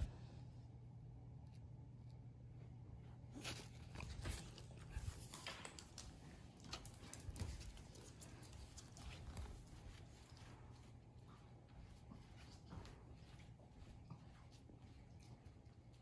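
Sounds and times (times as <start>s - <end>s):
dog clicking on wooden floor: 4.0s - 10.4s.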